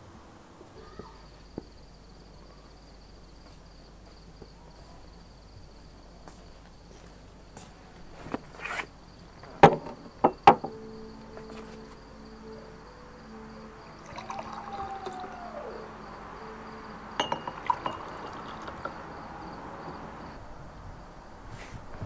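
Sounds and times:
faint high whine: 10.6 - 22.0
glasses clinking on table: 14.0 - 15.4, 17.2 - 19.0.

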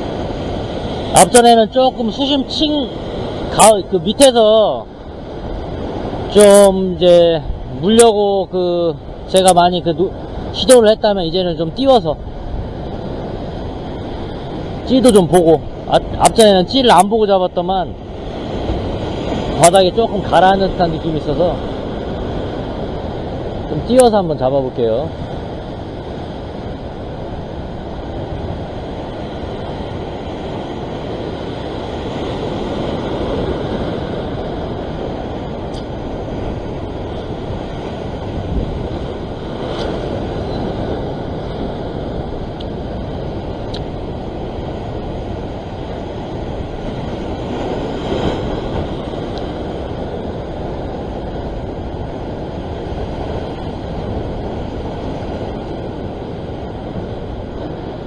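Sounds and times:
heavy surf washing over rocks: 0.0 - 58.0
wind buffeting microphone: 0.0 - 58.0.

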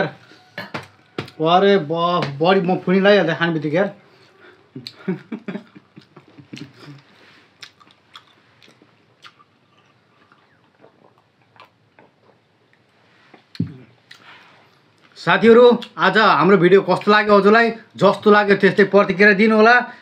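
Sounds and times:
chewing and swallowing: 5.9 - 15.2.

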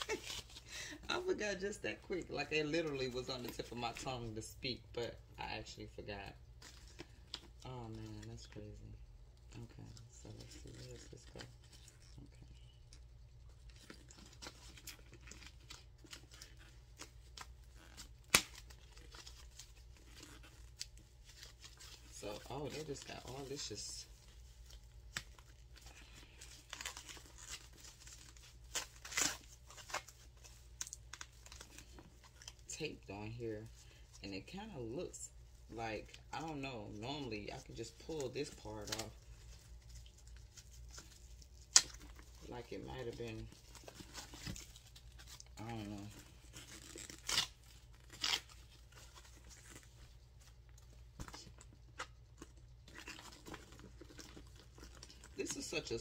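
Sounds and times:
wrapping tape tearing: 0.0 - 1.3, 13.4 - 32.8, 36.9 - 56.0
plastic wrapping crinkling: 0.0 - 4.9, 9.4 - 56.0.

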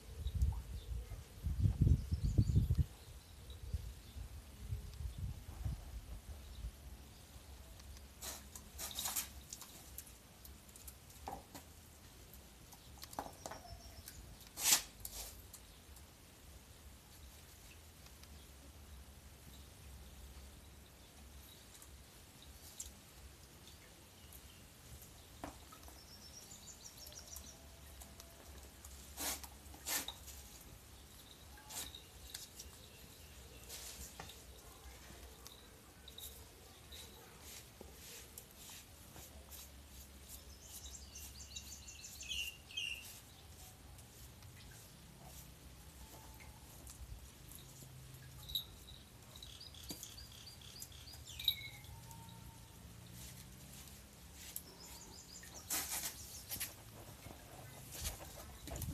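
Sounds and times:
faint high chirping: 29.9 - 38.8, 40.3 - 53.8.

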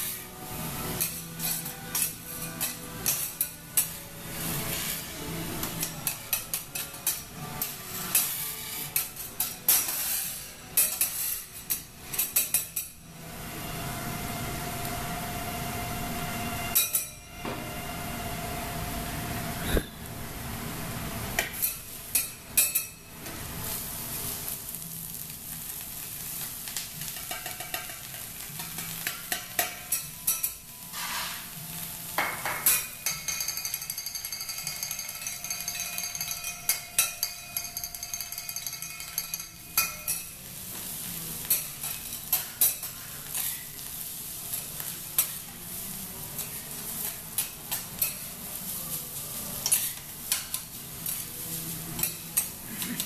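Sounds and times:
metal spatulas scraping a hot plate: 0.0 - 13.0, 26.1 - 53.0
food sizzling on a griddle: 0.0 - 15.2, 20.4 - 53.0.

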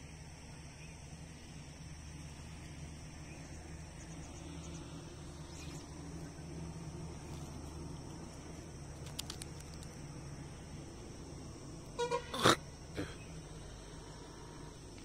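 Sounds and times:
insects chirring: 0.0 - 15.0
low steady hum: 0.0 - 15.0.

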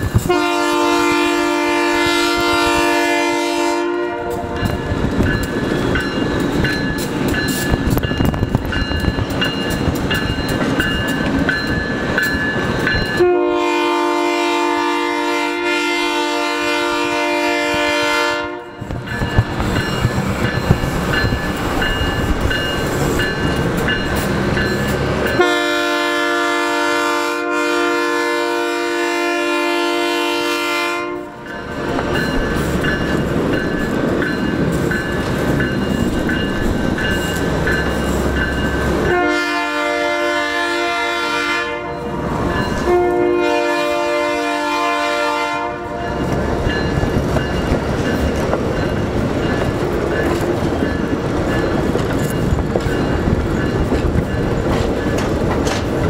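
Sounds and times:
train cars clickety-clack rolling: 0.0 - 56.0
locomotive horn blasts: 0.2 - 4.8, 13.1 - 18.8, 25.4 - 31.5, 39.0 - 46.3.

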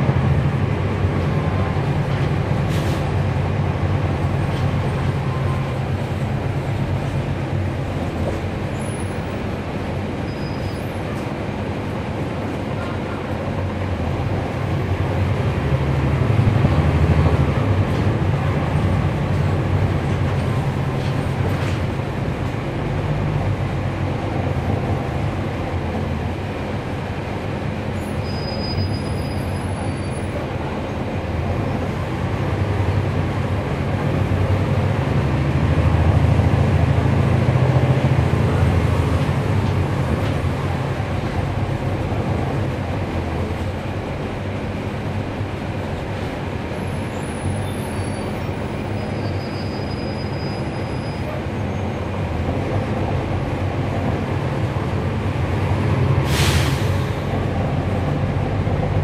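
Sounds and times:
bus diesel engine drone: 0.0 - 59.0
air hiss: 56.2 - 57.3.

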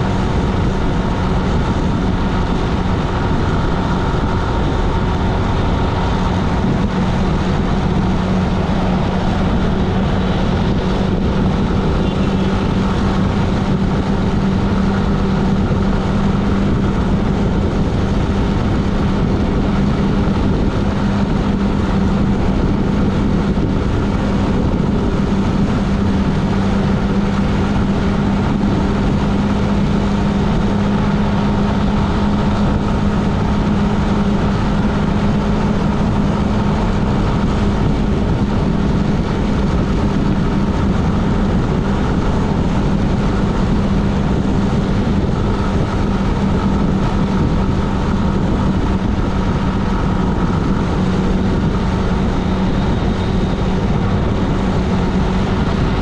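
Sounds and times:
vehicle road noise: 0.0 - 56.0.

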